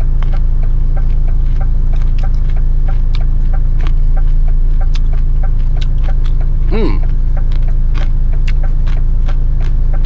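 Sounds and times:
light even ticking: 0.0 - 10.0.

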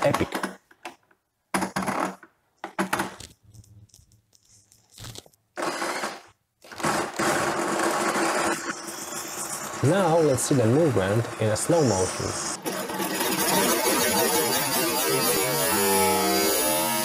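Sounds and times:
electric drill spinning: 5.0 - 10.8, 11.8 - 17.0.

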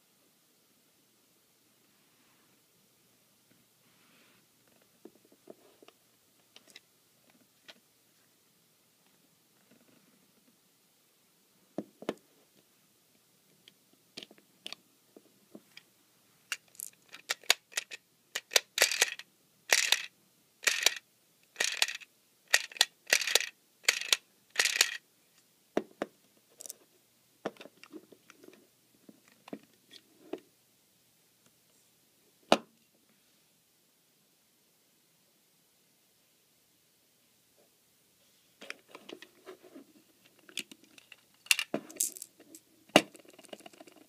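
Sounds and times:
plastic toy clicks and rattles: 16.5 - 25.0, 40.4 - 44.0.

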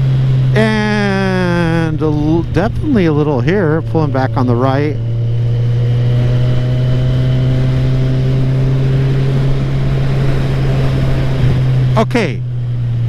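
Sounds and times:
wind noise: 0.0 - 12.1
motorcycle engine running: 0.0 - 13.0.

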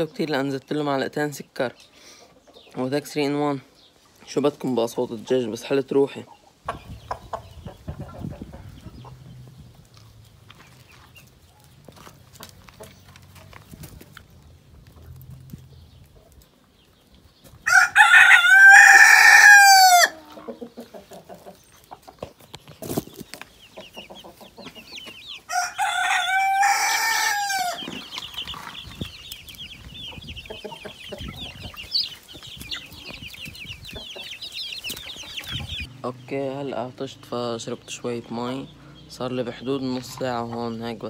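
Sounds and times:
rooster crowing: 17.6 - 20.2, 25.5 - 27.9.

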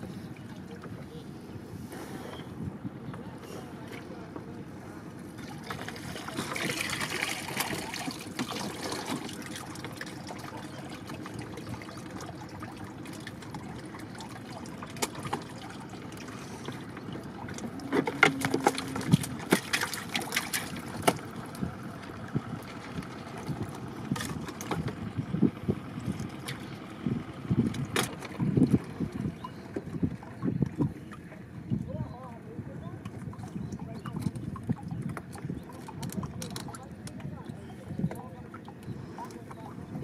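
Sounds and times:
water trickling and dripping: 5.4 - 24.9, 27.6 - 31.9, 33.0 - 39.8.

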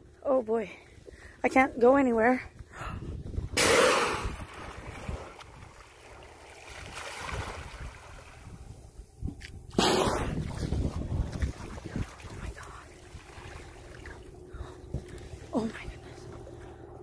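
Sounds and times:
water washing against hull: 3.1 - 9.4, 10.0 - 17.0.

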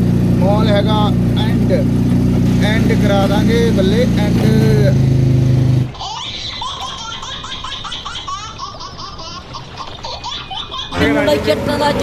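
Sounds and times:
loud low steady hum: 0.0 - 5.9, 11.0 - 12.0
high-pitched laughter: 6.0 - 11.1.

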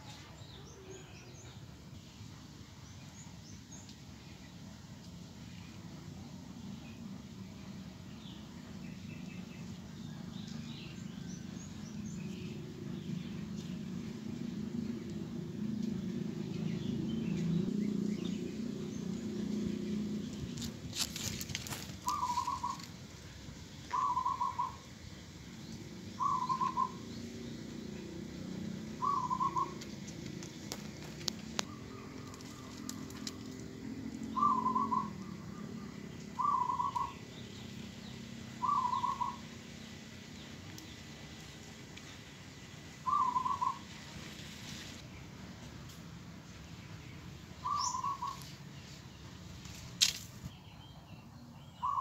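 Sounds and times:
low outdoor rumble: 0.0 - 52.0
bird warbling call: 22.0 - 22.9, 23.9 - 24.8, 26.2 - 27.1, 28.9 - 29.9, 34.3 - 37.2, 38.6 - 39.5, 43.0 - 43.9, 47.6 - 48.6, 51.8 - 52.0.

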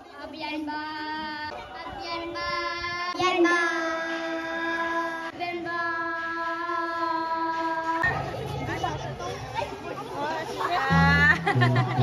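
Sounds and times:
child singing: 0.2 - 8.0.

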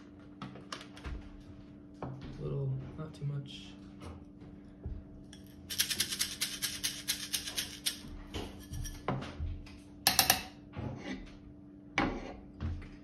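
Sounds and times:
coffee beans rattling in glass: 5.7 - 8.0.

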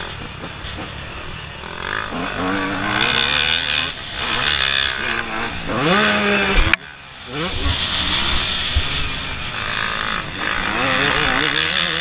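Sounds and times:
two-stroke motorbike revving: 0.0 - 12.0.

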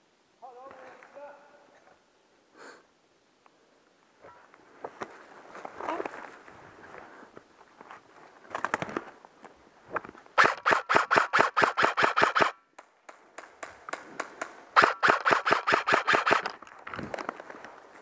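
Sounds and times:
airsoft rifle bursts: 10.4 - 12.6, 14.8 - 16.6
airsoft rifle single shots: 10.4 - 12.6, 14.8 - 16.5.

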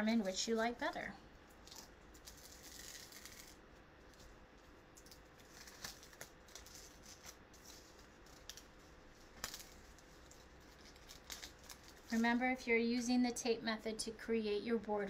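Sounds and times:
tape peeling off card: 1.6 - 4.3, 4.9 - 12.2.

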